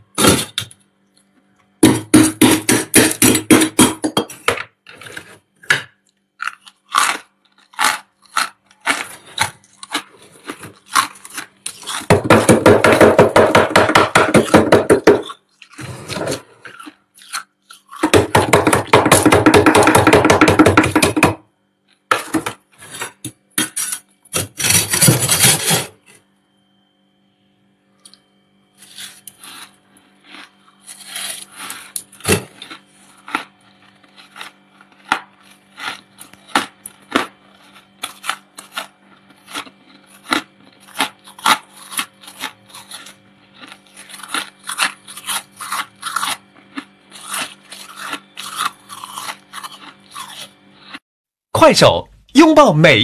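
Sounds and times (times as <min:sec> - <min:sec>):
crunchy frost scraping: 0:06.4 - 0:12.1, 0:15.2 - 0:17.9, 0:22.2 - 0:23.2, 0:23.8 - 0:26.2, 0:28.8 - 0:51.0.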